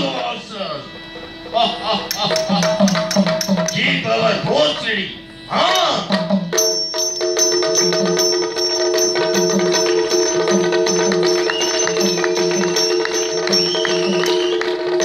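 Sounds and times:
steady drone: 0.0s - 5.8s
ringing hand cymbals: 0.8s - 4.1s, 5.2s - 15.0s
drum strokes: 0.9s - 4.9s, 5.6s - 15.0s.

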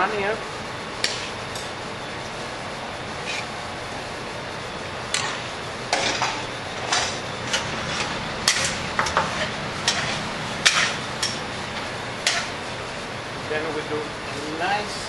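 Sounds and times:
busy kitchen background noise: 0.0s - 15.0s
utensils and dishes clinking: 5.1s - 11.5s, 12.2s - 12.6s.

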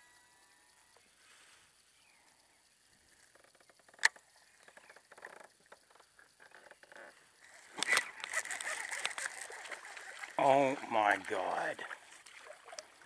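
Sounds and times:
reel ticking and rattling: 3.1s - 11.9s
sharp reel click: 7.6s - 10.4s.

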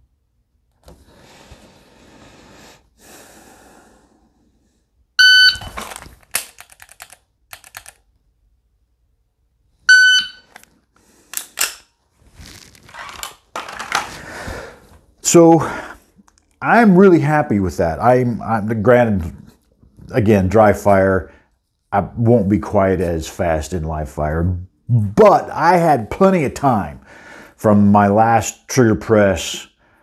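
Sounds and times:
shot timer beep: 5.2s - 5.7s, 9.9s - 10.5s.

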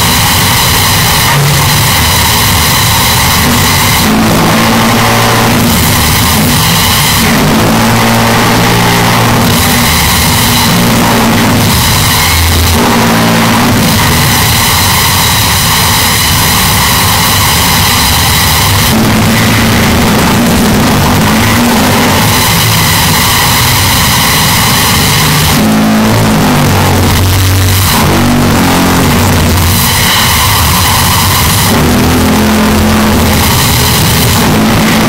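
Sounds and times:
distorted machine drone: 0.0s - 35.0s.

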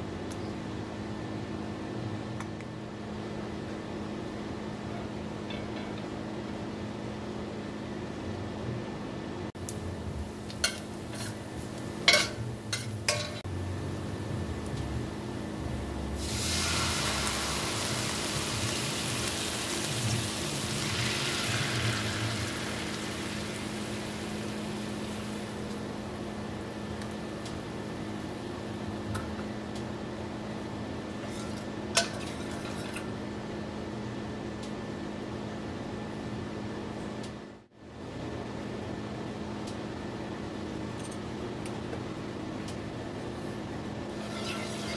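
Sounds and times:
steady hum: 0.0s - 44.9s
liquid sizzling in hot pot: 16.1s - 25.9s, 44.1s - 44.9s.

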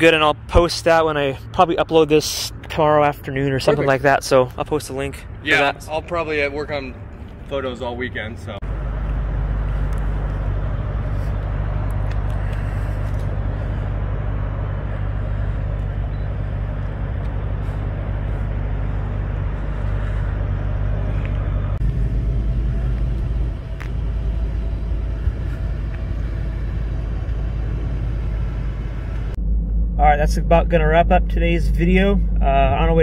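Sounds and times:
car engine idling: 8.5s - 33.0s.

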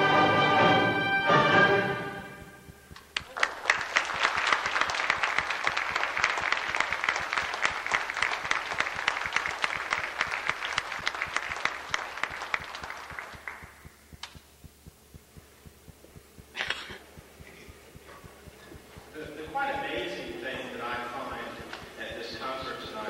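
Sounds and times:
audience applause: 2.9s - 13.9s.

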